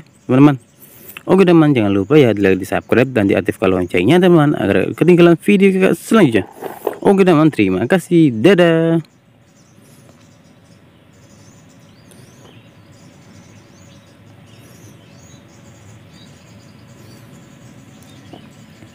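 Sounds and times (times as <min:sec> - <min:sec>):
low background hiss: 0:00.0 - 0:18.9
small birds chirping: 0:00.0 - 0:18.9.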